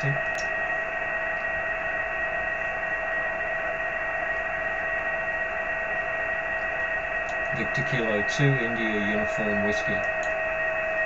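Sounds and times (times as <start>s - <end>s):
radio static hiss: 0.0s - 1.0s, 3.6s - 10.4s
steady whistle tone: 0.0s - 11.0s.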